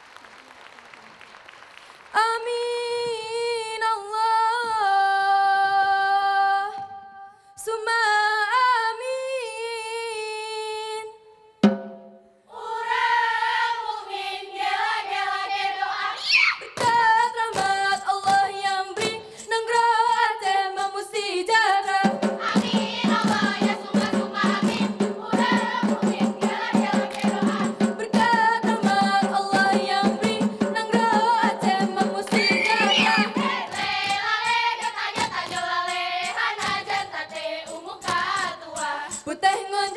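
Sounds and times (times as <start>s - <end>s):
women singing in chorus: 2.2s - 11.2s, 12.5s - 39.9s
hand-clapping and body slaps: 16.7s - 19.2s, 27.1s - 27.4s, 32.3s - 35.7s.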